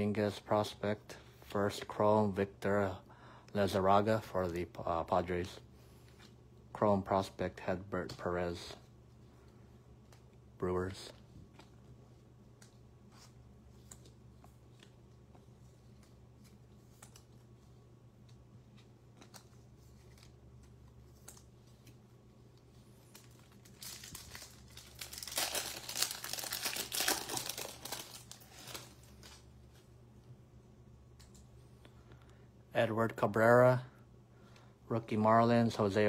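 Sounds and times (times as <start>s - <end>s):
foil wrapper crinkling and tearing: 23.0s - 29.4s.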